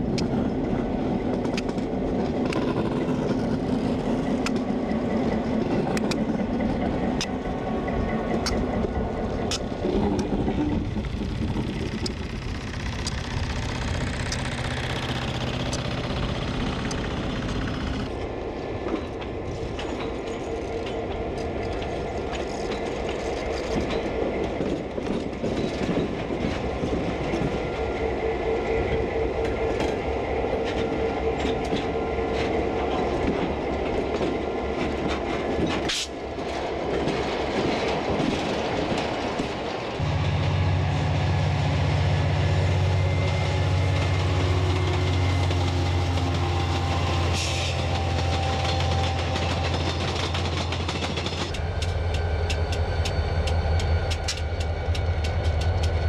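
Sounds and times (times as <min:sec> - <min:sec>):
train wheels clicking over rail joints: 0:00.0 - 0:28.2, 0:28.8 - 0:40.5, 0:42.6 - 0:56.0
diesel locomotive engines: 0:00.0 - 0:56.0
rushing noise of passing train: 0:00.0 - 0:56.0.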